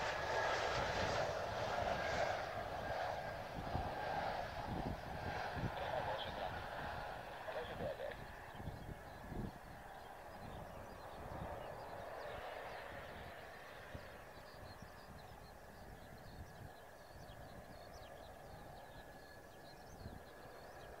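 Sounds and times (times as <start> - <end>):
jet engine whining: 0.0 - 14.8
small birds chirping: 5.8 - 21.0.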